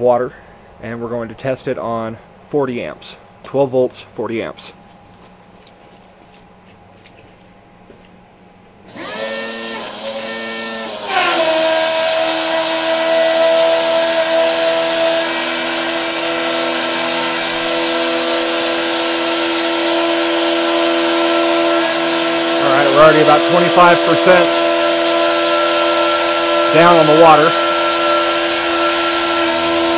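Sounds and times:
electric water pump whining: 0:08.8 - 0:29.9
water jetting from spray nozzle: 0:11.0 - 0:29.9.

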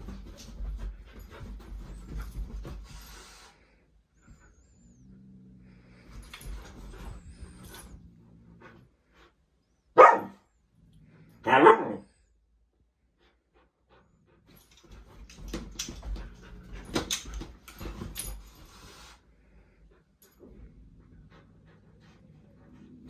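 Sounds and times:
puppy panting: 0:19.8 - 0:23.0.

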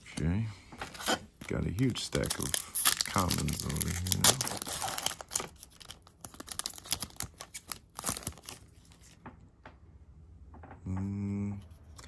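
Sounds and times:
foil pack crinkling: 0:00.8 - 0:09.2.

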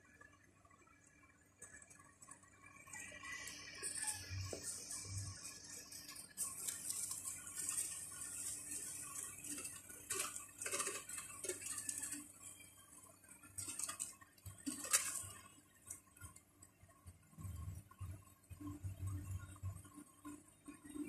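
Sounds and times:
hamsters scurrying in bedding: 0:01.6 - 0:16.6.

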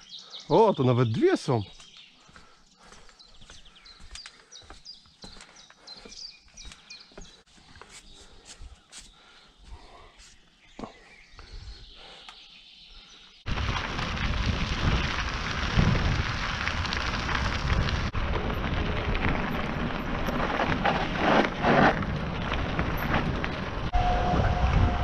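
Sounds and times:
wind rushing over microphone: 0:13.5 - 0:25.0.

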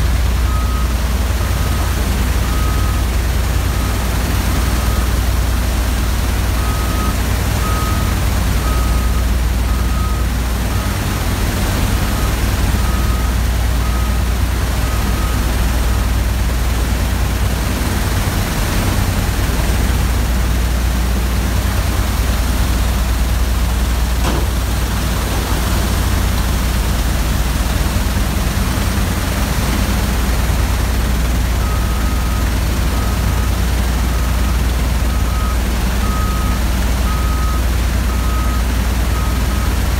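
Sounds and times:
machinery humming: 0:00.0 - 0:39.9
reversing alarm beeping: 0:00.4 - 0:16.4, 0:31.0 - 0:39.9.

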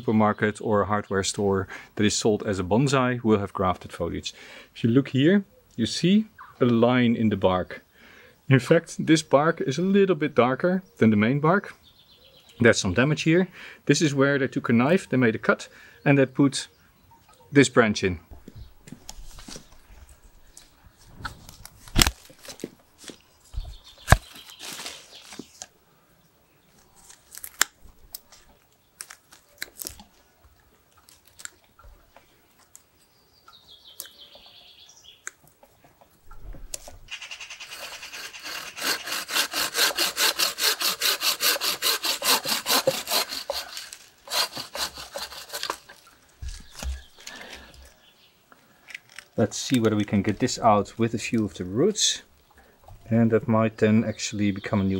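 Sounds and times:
cutter snipping wood: 0:21.9 - 0:22.2, 0:24.0 - 0:24.3, 0:37.8 - 0:46.0
hand saw cutting branch: 0:37.2 - 0:46.1.

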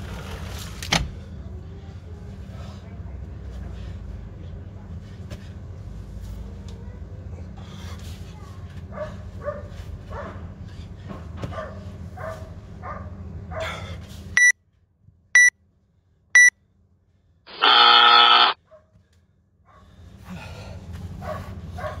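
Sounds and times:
long low timer buzz: 0:17.5 - 0:18.6
short high timer beeps: 0:17.5 - 0:18.6.

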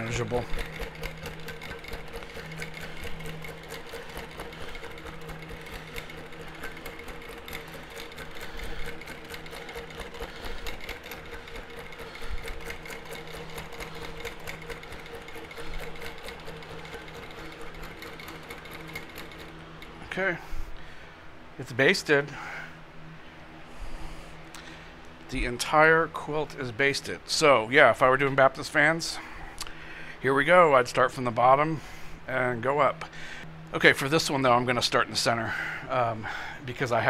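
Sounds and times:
needle strokes patter: 0:00.0 - 0:20.0
quilting machine hum: 0:00.0 - 0:37.0.

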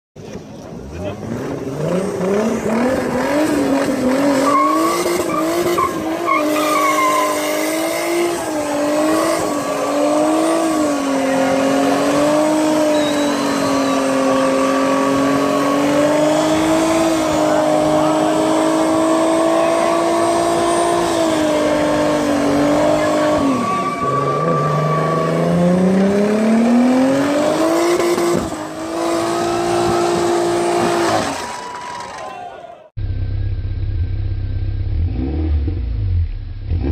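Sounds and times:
car engine at high revs: 0:00.3 - 0:31.6, 0:33.0 - 0:36.9
tyres spinning and squealing: 0:00.4 - 0:32.9.

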